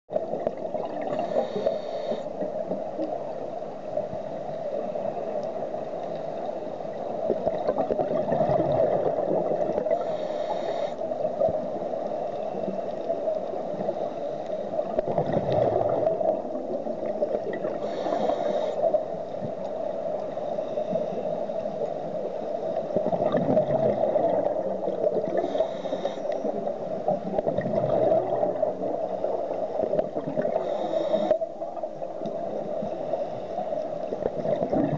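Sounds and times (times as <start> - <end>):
exhaled bubbles gurgling: 0.1 - 3.3, 6.9 - 34.9
regulator inhalation hiss: 1.2 - 2.3, 10.0 - 11.1, 17.8 - 18.9, 25.4 - 26.4, 30.6 - 31.3.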